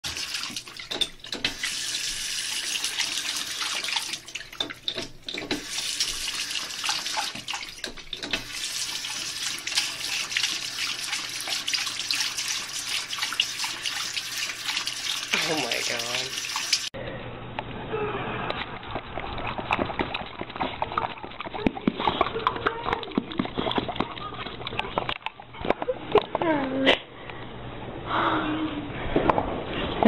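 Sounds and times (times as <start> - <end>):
tap water splashing in basin: 2.5 - 16.9.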